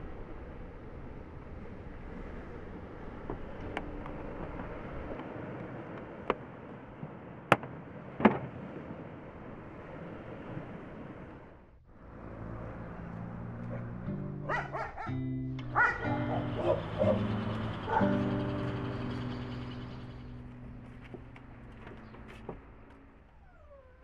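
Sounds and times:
outdoor background noise: 0.0s - 24.0s
music: 14.0s - 23.1s
low steady tones: 15.2s - 24.0s.

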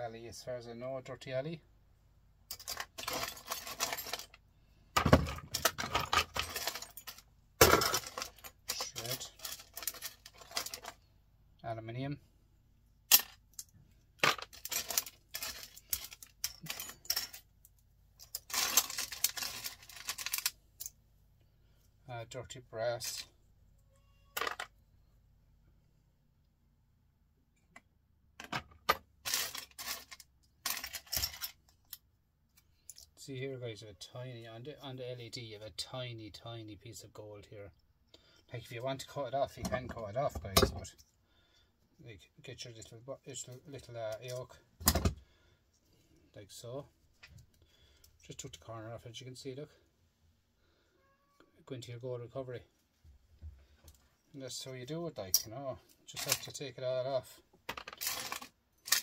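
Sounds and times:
small parts clattering and rattling: 2.5s - 11.1s, 13.1s - 21.0s, 24.3s - 24.8s, 28.4s - 33.2s, 55.2s - 56.6s, 57.5s - 59.0s.

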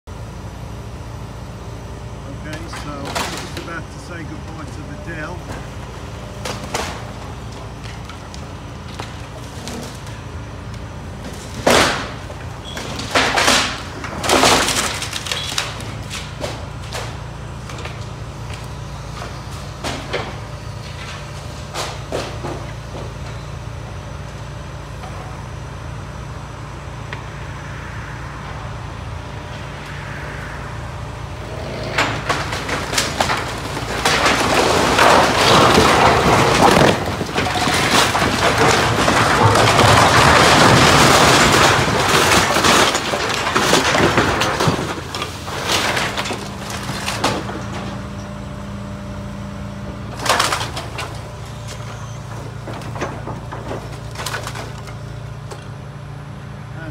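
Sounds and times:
excavator engine running: 0.1s - 56.9s
building collapsing crash: 2.4s - 7.6s, 11.2s - 18.0s, 30.3s - 48.1s, 50.1s - 55.1s.

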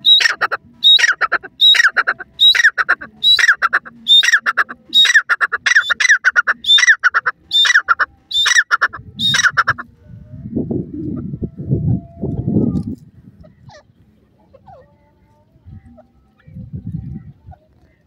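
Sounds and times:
francolin calling: 0.0s - 9.8s.

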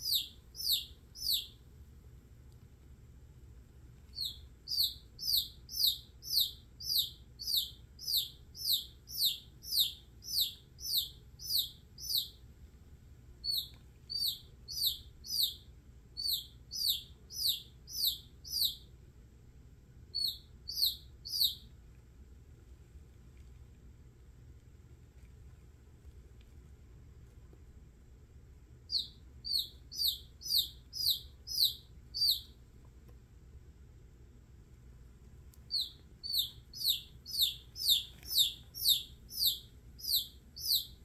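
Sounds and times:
baby chick peeping: 0.0s - 1.7s, 4.0s - 12.6s, 13.4s - 19.0s, 20.0s - 21.8s, 28.8s - 32.7s, 35.6s - 41.0s.

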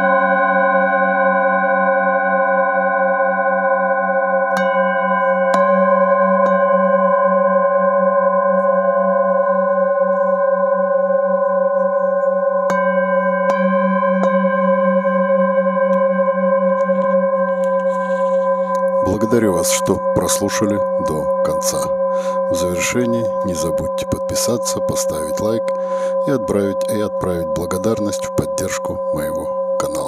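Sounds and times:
singing bowl strikes: 0.0s - 23.8s
singing bowls ringing: 0.0s - 30.0s.

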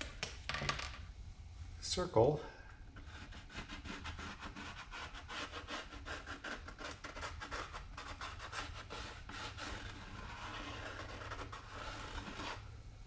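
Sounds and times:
pen scratching on plastic film: 3.0s - 12.6s.

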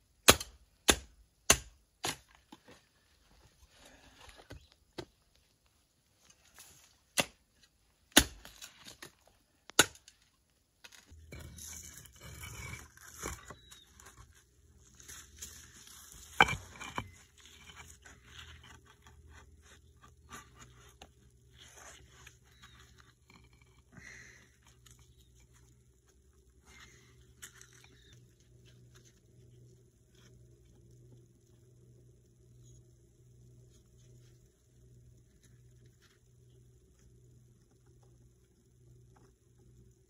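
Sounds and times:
low steady hum: 0.0s - 40.0s
scraping and rustling: 11.0s - 23.7s.

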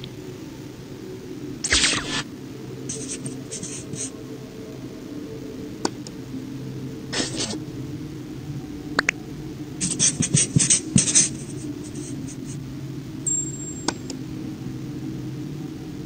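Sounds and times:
steady low hum: 0.0s - 16.0s
marker scratching on whiteboard: 2.9s - 4.1s, 7.2s - 7.6s, 9.8s - 12.6s.

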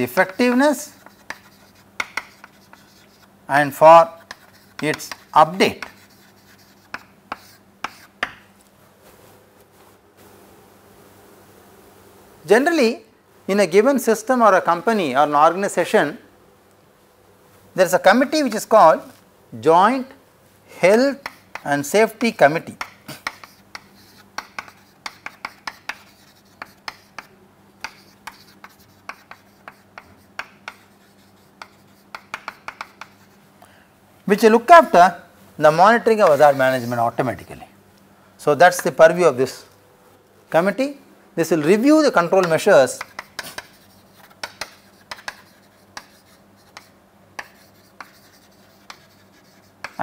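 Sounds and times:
chalk tapping and scratching: 0.0s - 8.5s, 20.9s - 33.4s, 35.7s - 37.2s, 41.7s - 50.0s
faint steady hum: 0.0s - 50.0s.

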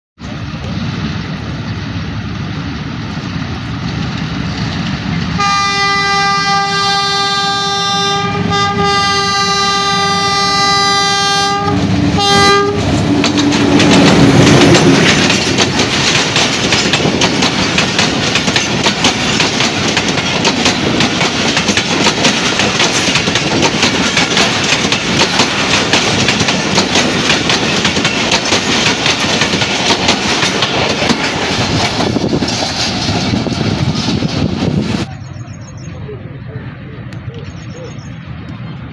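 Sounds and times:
locomotives passing: 0.2s - 38.9s
locomotive horn blast: 5.4s - 13.0s
train wheels clacking over rail joints: 12.2s - 35.1s.

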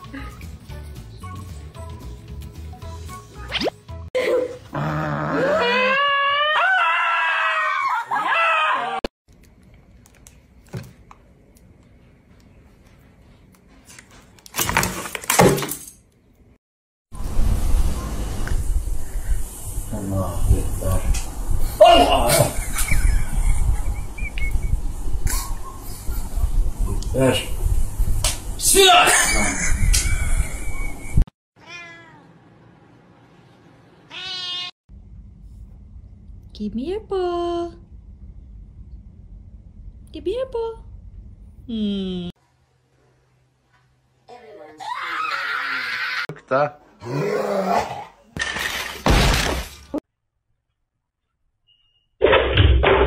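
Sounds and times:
cat meowing: 31.6s - 32.3s, 34.1s - 34.7s.

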